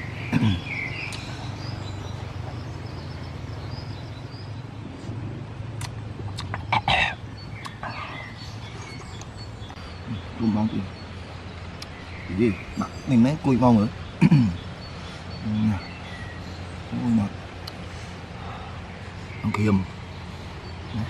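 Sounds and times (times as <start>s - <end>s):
birds chirping: 0.0s - 21.0s
steady low hum: 0.0s - 21.0s
mouth sounds of eating: 5.8s - 8.4s.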